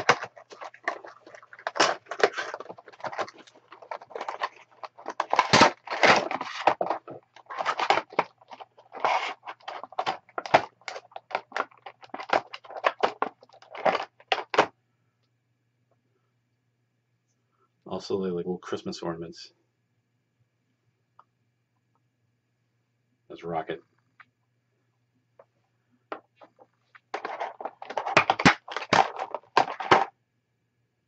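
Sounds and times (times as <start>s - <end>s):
cardboard boxes rustling and crinkling: 0.0s - 14.7s, 27.0s - 30.1s.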